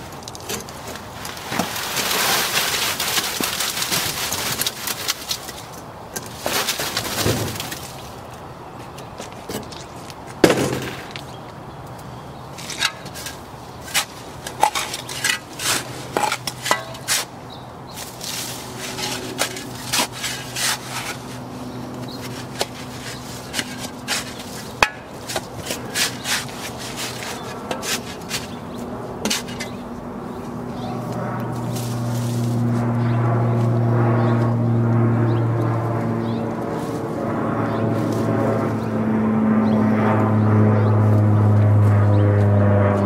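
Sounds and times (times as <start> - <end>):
shovel and wheelbarrow knocks and scrapes: 6.2 - 8.0, 12.6 - 17.3, 18.2 - 21.3, 29.2 - 29.8.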